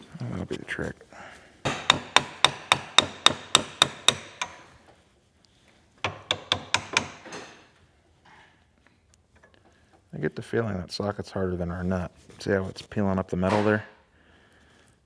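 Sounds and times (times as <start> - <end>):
hammer striking steel socket: 1.7 - 4.7.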